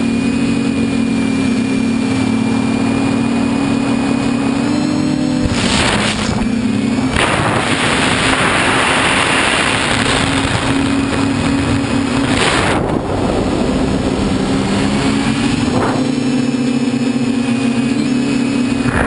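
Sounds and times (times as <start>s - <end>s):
quadcopter motors whining: 0.0s - 19.0s
wind on microphone: 5.2s - 16.6s, 18.7s - 19.0s.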